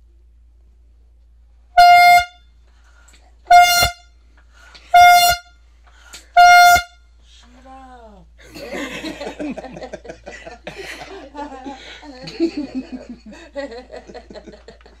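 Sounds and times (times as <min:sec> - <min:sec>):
air horn blasts: 0:01.7 - 0:02.6, 0:03.5 - 0:07.3.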